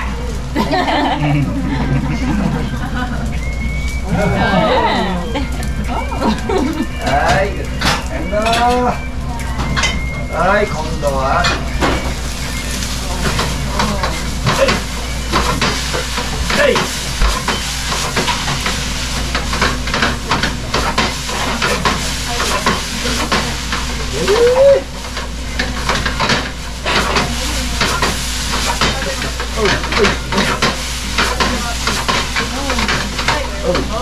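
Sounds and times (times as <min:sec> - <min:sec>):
rice sizzling in a frying pan: 0:00.0 - 0:34.0
spatula scraping and tapping pan: 0:11.4 - 0:24.1, 0:24.8 - 0:34.0.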